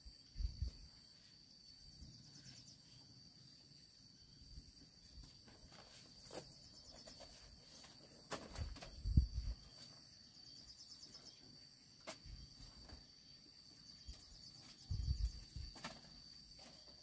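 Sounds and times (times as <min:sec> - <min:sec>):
high-pitched insect drone: 0:08.6 - 0:17.0.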